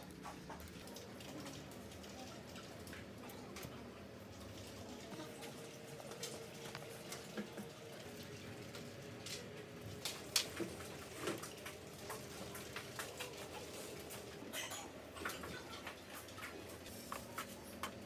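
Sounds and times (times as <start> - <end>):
charcoal crackling and popping: 9.2 - 13.5.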